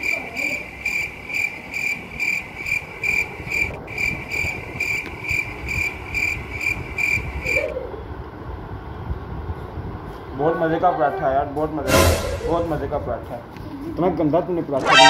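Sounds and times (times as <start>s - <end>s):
cricket chirps: 0.0s - 7.7s.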